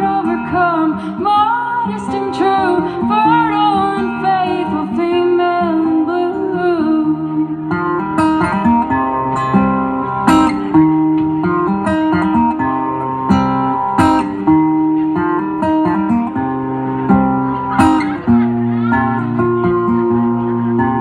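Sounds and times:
acoustic guitar strumming: 0.0 - 21.0.

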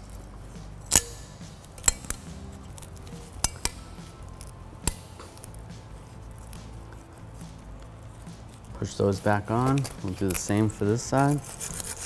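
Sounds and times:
metallic clips clicking: 0.8 - 5.6, 9.5 - 11.4.

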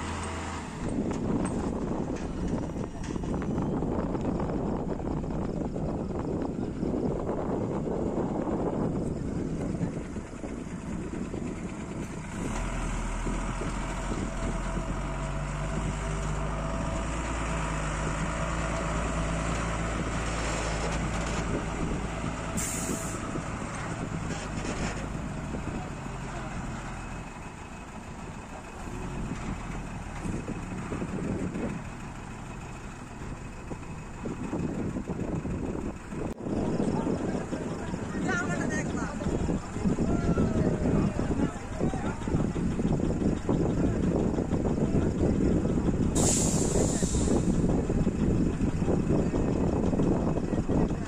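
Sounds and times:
diesel lorry engine droning: 0.0 - 51.0
air brake hiss: 22.6 - 23.2, 46.2 - 47.5.

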